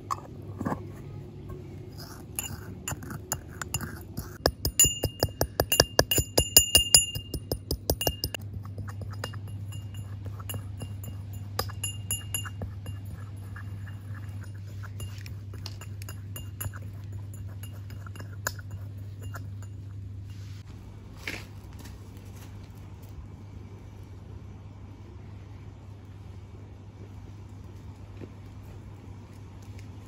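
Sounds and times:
steady low hum: 0:00.0 - 0:30.0
brass pestle striking mortar: 0:02.0 - 0:20.0.

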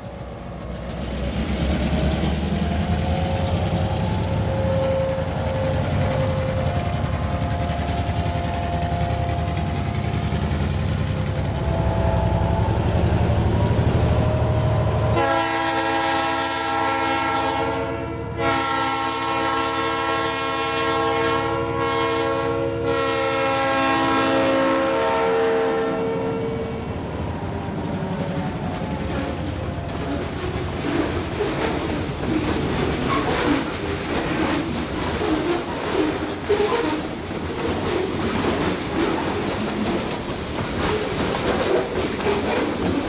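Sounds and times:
train wheels clickety-clack: 0:00.0 - 0:12.0, 0:26.3 - 0:43.0
locomotive air horn blasts: 0:11.7 - 0:12.8, 0:15.2 - 0:26.8.

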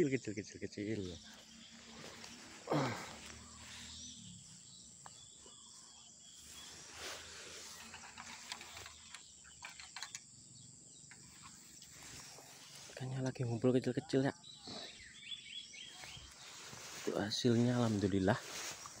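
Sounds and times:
faint riverside ambience: 0:00.0 - 0:19.0
brief rustle: 0:06.8 - 0:10.2.

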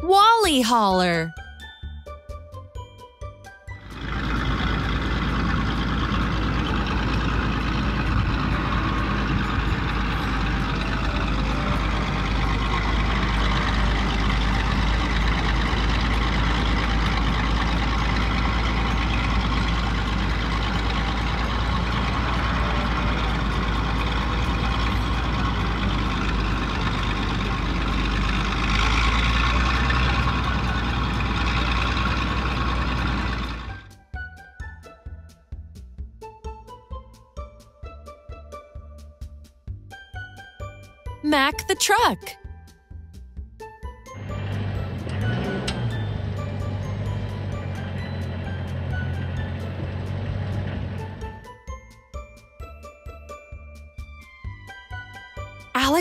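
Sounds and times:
truck engine running: 0:03.8 - 0:33.9, 0:44.2 - 0:51.4.

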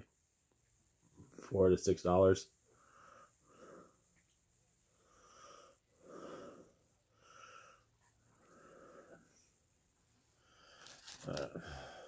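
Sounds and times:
soft breathing through nose: 0:02.6 - 0:09.6, 0:10.3 - 0:12.0.

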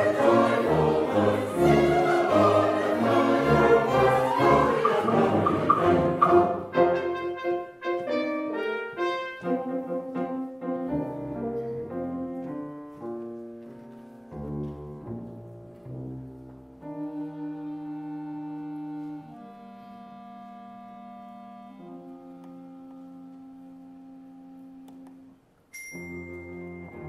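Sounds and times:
orchestra of strings and brass: 0:00.0 - 0:13.4, 0:15.0 - 0:25.4, 0:26.0 - 0:27.0.

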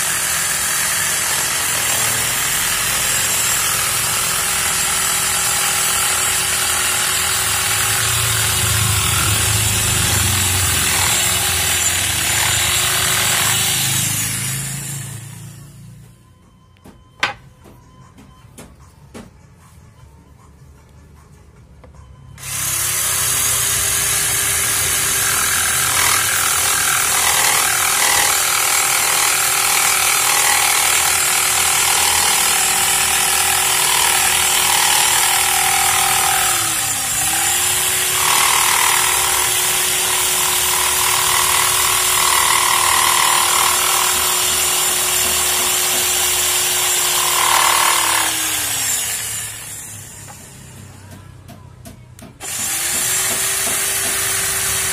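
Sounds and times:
electric jigsaw cutting wood: 0:00.0 - 0:15.6, 0:22.4 - 0:50.5, 0:52.4 - 0:54.9.

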